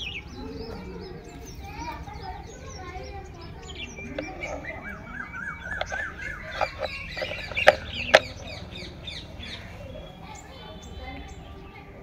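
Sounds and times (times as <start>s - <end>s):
birds chirping: 0.0s - 12.0s
toy wheel clicks and knocks: 5.7s - 8.5s.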